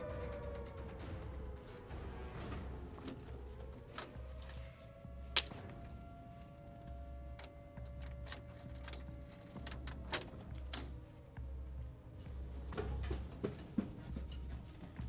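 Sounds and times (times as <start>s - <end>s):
keys jangling: 3.0s - 15.0s
door lock clicking: 7.0s - 11.0s.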